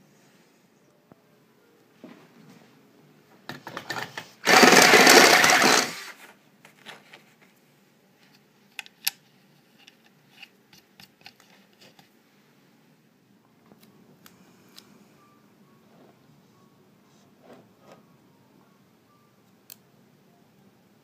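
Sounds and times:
power drill running: 4.4s - 6.2s.

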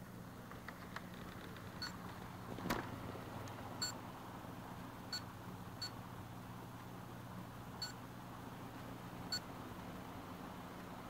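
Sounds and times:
short high-pitched hard drive beeps: 7.8s - 8.0s.

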